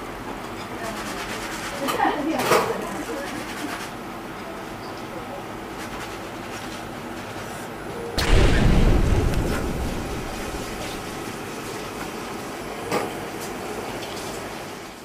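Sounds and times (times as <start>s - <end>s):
deep boom sound effect: 8.2s - 11.4s.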